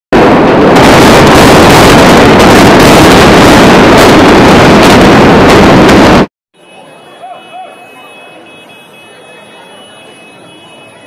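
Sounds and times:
building collapsing roar: 0.2s - 6.3s.

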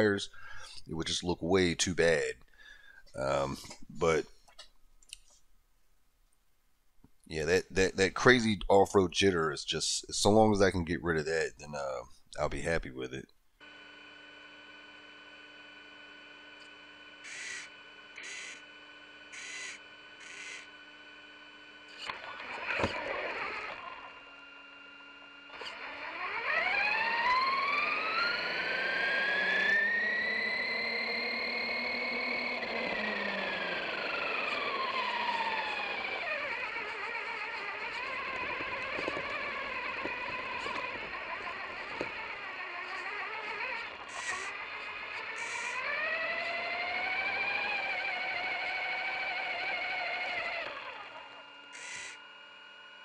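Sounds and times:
rc truck motor whine: 13.6s - 53.0s.

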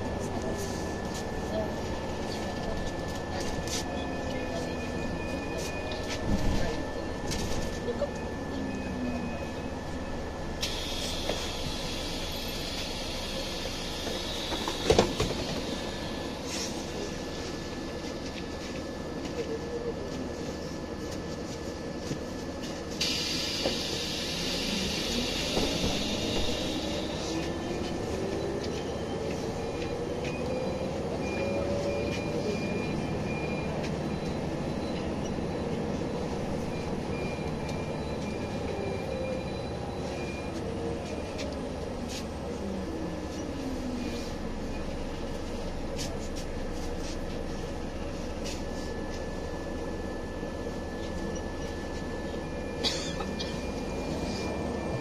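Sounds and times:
bus engine accelerating: 0.0s - 55.0s
air brake hiss: 10.6s - 16.8s, 23.0s - 27.2s.

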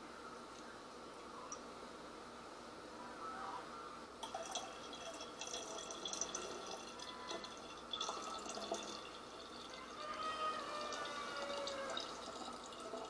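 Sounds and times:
juice trickling into glass jug: 4.2s - 13.0s.

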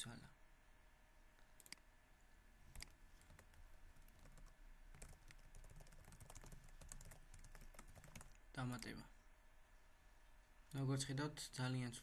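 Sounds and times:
faint keyboard typing: 1.4s - 1.9s, 2.7s - 9.1s.

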